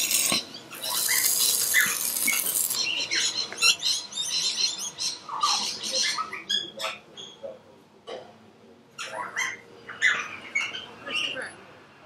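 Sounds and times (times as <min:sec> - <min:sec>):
arc welder crackling: 0:00.0 - 0:02.8
birds chirping: 0:00.0 - 0:07.6.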